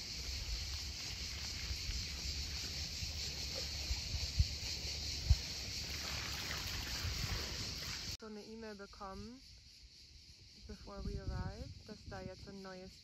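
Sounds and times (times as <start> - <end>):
wind rumbling on microphone: 0.0 - 8.2, 10.5 - 13.0.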